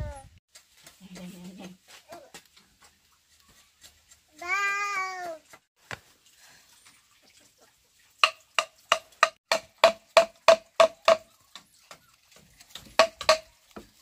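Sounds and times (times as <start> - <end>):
blade chopping wood: 8.2 - 11.2.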